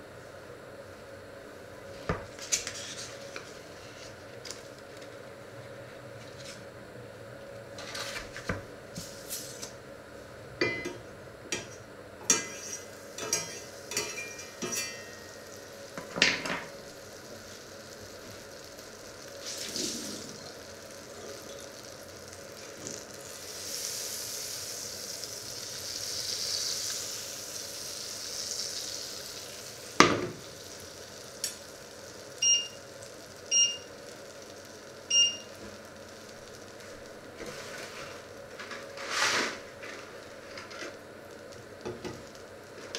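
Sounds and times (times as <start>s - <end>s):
utensils and cookware clinking: 11.6s - 15.4s
butter sizzling in a pan: 12.3s - 42.9s
short beeps from hob controls: 32.4s - 32.8s, 33.5s - 33.9s, 35.1s - 35.5s.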